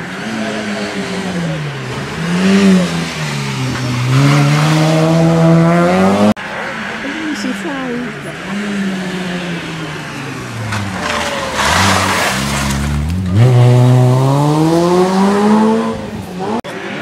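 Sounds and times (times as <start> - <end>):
rally car engine: 0.0 - 17.0
tyres sliding: 8.2 - 15.5.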